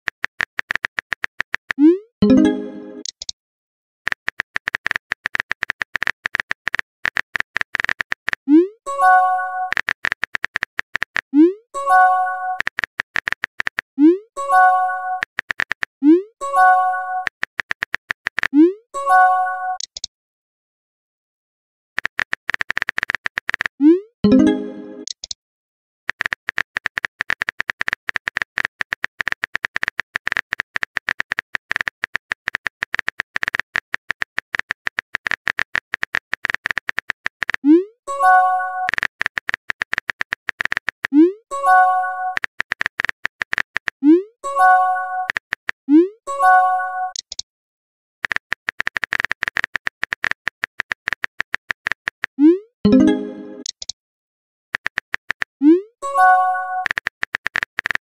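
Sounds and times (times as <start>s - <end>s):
keyboard typing clicks: 0.0s - 3.4s, 4.1s - 8.7s, 9.6s - 14.2s, 15.1s - 15.9s, 16.5s - 18.8s, 19.8s - 20.1s, 22.0s - 25.4s, 26.1s - 46.1s, 47.1s - 47.4s, 48.2s - 54.0s, 54.8s - 58.0s
message chime: 2.2s - 3.1s, 24.2s - 25.1s, 52.9s - 53.7s.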